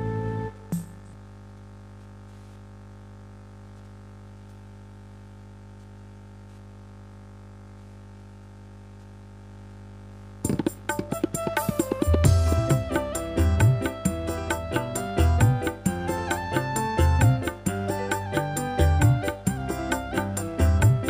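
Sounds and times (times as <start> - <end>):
electrical hum: 0.0 - 21.0
sharp hand-drum beats: 0.6 - 1.2, 10.4 - 21.0
keyboard dangdut accompaniment: 10.5 - 21.0.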